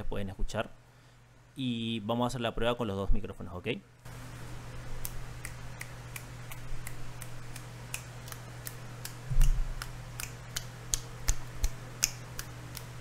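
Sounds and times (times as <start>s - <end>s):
electric fan humming: 0.0s - 13.0s
rapid small clicks: 5.0s - 13.0s.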